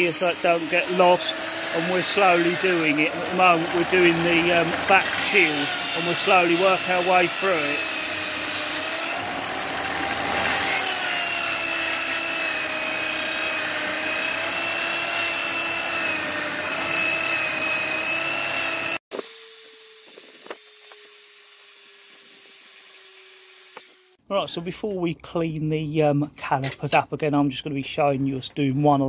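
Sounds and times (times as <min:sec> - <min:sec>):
wire brush scratching metal: 0:00.0 - 0:11.0
drill motor whining: 0:00.0 - 0:24.2.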